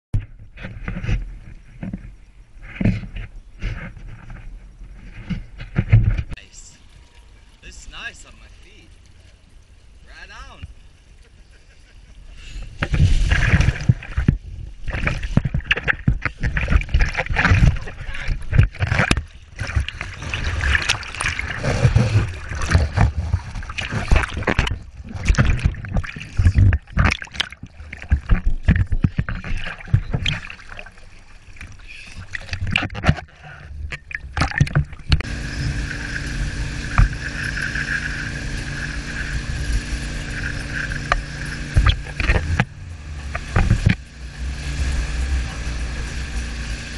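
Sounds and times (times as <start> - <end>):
boat engine drone: 0.6 - 46.9
wake water rushing: 2.6 - 46.9
water splashing: 4.9 - 46.9.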